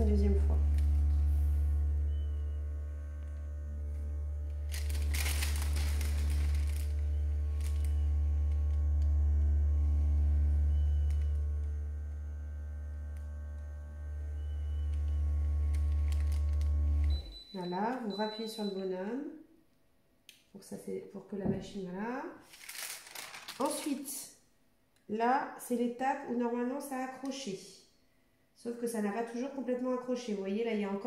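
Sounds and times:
parchment paper rustle: 0:04.7 - 0:08.0, 0:22.4 - 0:24.2.

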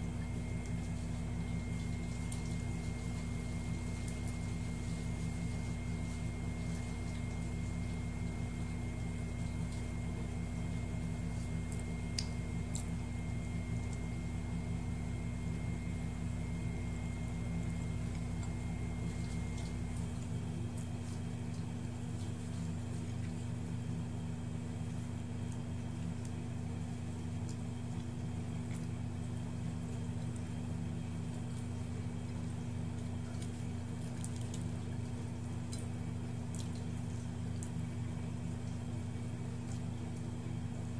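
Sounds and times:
faint high whine: 0:00.0 - 0:21.2
low hum: 0:00.0 - 0:25.1
wet squishing of hands in food: 0:00.0 - 0:40.9.

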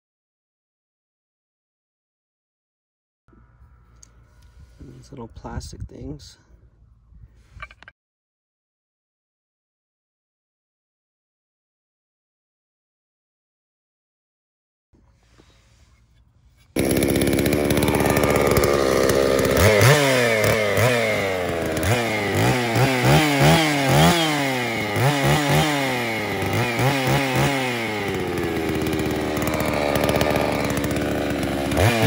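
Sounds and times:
chainsaw revving and idling: 0:16.6 - 0:32.0.

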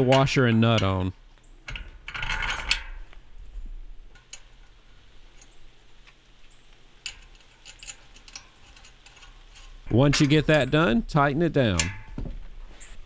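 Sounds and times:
metal handle clicks and taps: 0:00.0 - 0:01.0, 0:11.7 - 0:12.4.

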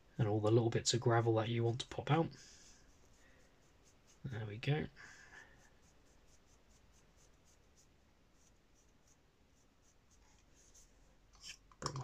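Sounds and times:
brush scratching gritty surface: 0:02.6 - 0:04.4, 0:05.4 - 0:11.5.

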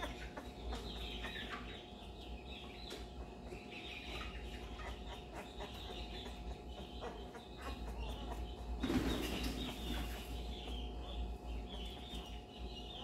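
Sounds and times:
puppy squeaking and whimpering: 0:00.0 - 0:01.9, 0:03.4 - 0:08.8.

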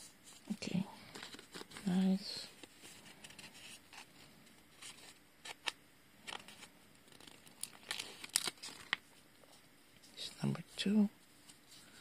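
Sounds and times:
paper rustling: 0:00.2 - 0:09.6.

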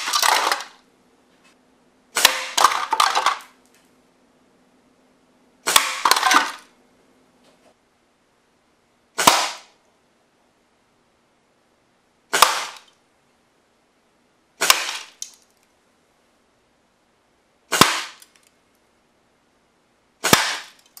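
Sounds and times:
air rifle shots: 0:02.2 - 0:03.3, 0:05.6 - 0:06.7, 0:09.2 - 0:09.8, 0:12.3 - 0:12.9, 0:14.6 - 0:15.2, 0:17.7 - 0:18.2, 0:20.2 - 0:20.8.

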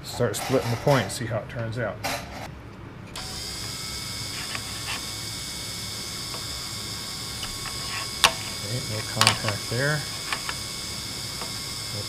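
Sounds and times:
drill grinder motor whining: 0:03.2 - 0:12.0.

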